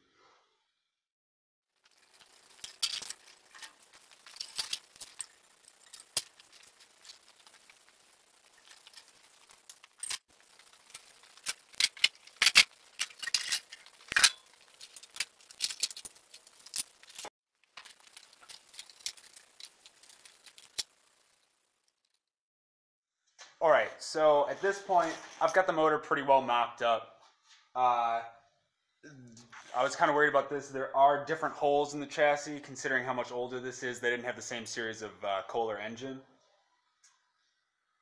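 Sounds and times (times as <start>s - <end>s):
metal tools clinking and rattling: 2.2s - 7.6s, 11.8s - 17.9s.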